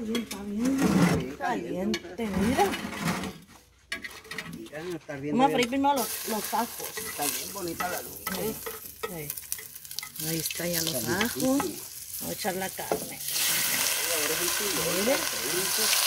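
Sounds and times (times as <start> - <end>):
metal spoon scraping: 5.6 - 16.0
meat sizzling in fat: 6.0 - 16.0.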